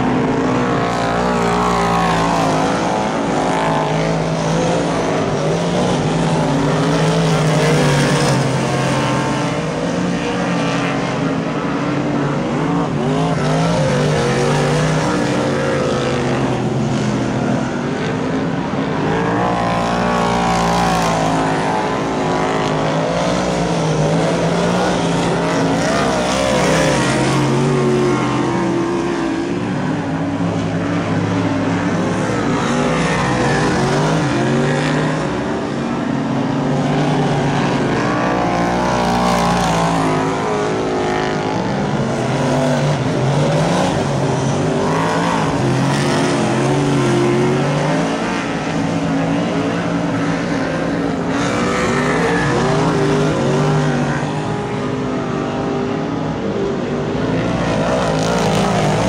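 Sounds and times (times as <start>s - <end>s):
race car engines revving: 0.0s - 59.0s.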